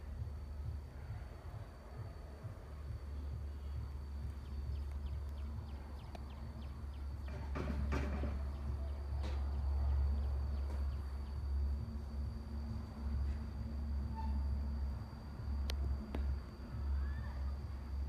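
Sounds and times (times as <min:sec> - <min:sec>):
low rumble: 0:00.0 - 0:18.0
faint high-pitched tone: 0:11.8 - 0:18.0
faint small ticks: 0:15.6 - 0:16.6.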